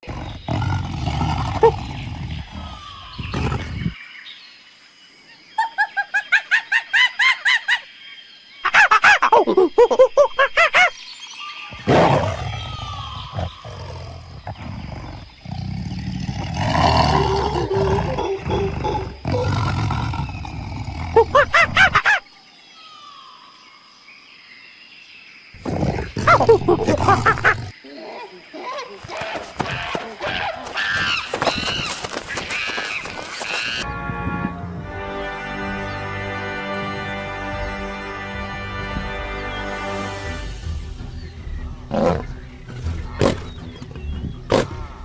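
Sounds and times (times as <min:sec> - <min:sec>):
yelping animal calls: 0:16.3 - 0:22.2
monkey alarm calls: 0:21.3 - 0:22.2, 0:28.1 - 0:33.8.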